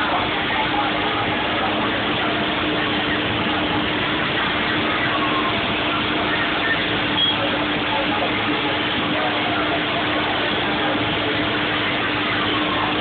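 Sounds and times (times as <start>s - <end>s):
street traffic noise: 0.0s - 13.0s
vehicle engine idling: 0.0s - 13.0s.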